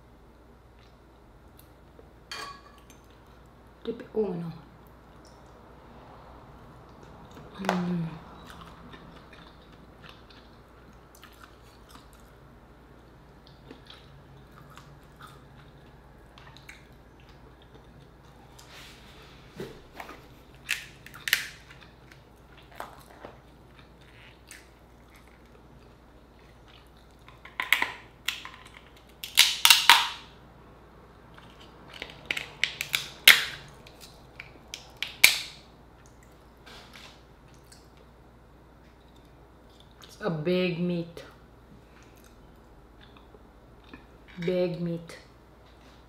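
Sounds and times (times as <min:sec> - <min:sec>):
crab shell cracking: 0:20.6 - 0:22.9, 0:27.2 - 0:30.2, 0:31.4 - 0:35.6.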